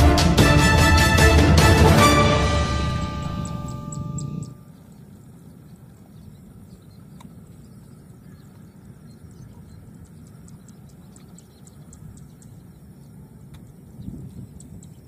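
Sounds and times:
low outdoor rumble: 0:00.0 - 0:06.8
faint high ticks: 0:07.2 - 0:07.6, 0:09.9 - 0:12.6, 0:13.5 - 0:15.0.

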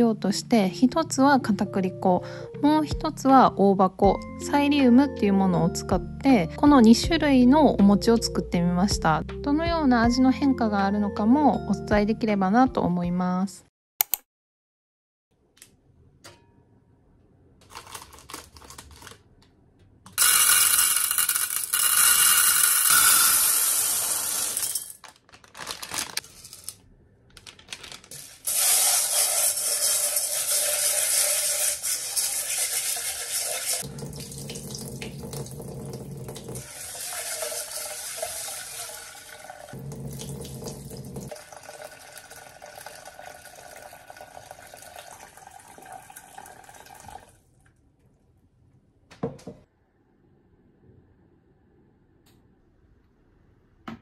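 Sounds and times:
dried beans rattling into metal pot: 0:20.2 - 0:26.8, 0:27.4 - 0:33.8.

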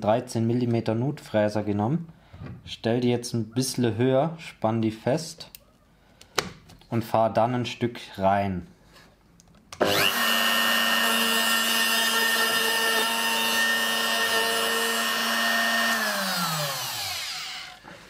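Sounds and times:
router whining: 0:09.8 - 0:18.0.

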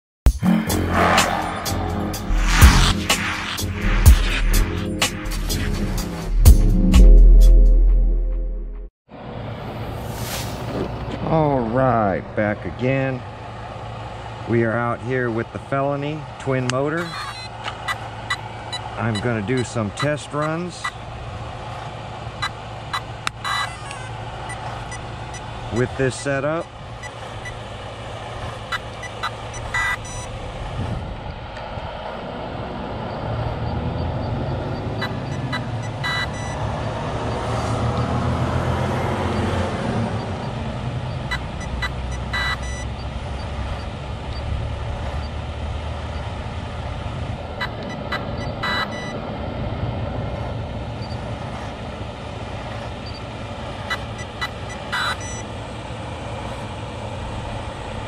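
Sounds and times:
short electronic beeps: 0:00.9 - 0:04.8, 0:17.1 - 0:18.9, 0:22.4 - 0:26.0, 0:28.7 - 0:30.3, 0:33.7 - 0:36.7, 0:41.1 - 0:44.5, 0:47.6 - 0:49.2, 0:53.9 - 0:55.4
truck engine idling: 0:10.9 - 0:33.1, 0:34.0 - 0:37.2, 0:40.1 - 0:58.0.

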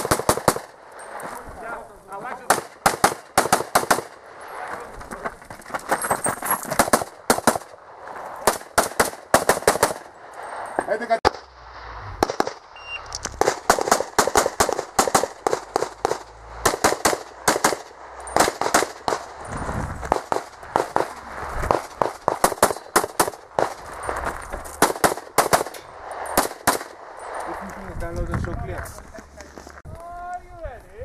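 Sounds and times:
pistol firing rapid shots: 0:00.0 - 0:00.8, 0:02.5 - 0:04.2, 0:06.8 - 0:07.8, 0:08.5 - 0:10.1, 0:13.4 - 0:19.3, 0:20.1 - 0:23.8, 0:24.8 - 0:25.8, 0:26.4 - 0:27.0
shot timer beep: 0:12.8 - 0:13.1.

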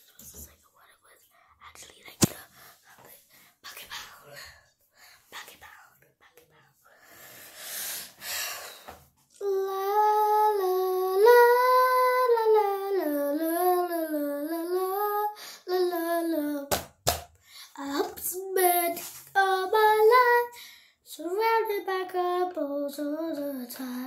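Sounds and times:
breathy whispering: 0:00.0 - 0:07.6
girl singing long held notes: 0:09.4 - 0:16.7, 0:17.5 - 0:24.0.

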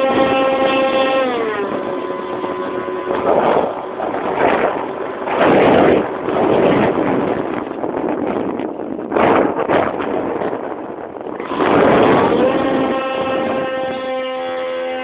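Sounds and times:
electric motors whining: 0:00.0 - 0:07.9, 0:11.3 - 0:15.0
rushing air noise: 0:00.0 - 0:14.0.

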